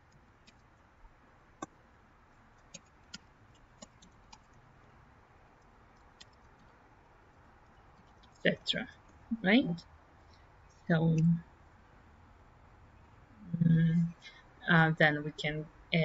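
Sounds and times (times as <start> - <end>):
keyboard keystrokes: 2.6 - 4.5.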